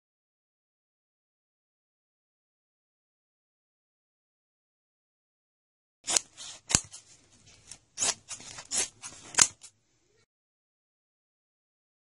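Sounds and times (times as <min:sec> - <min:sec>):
scissors snipping fabric: 0:06.1 - 0:09.7.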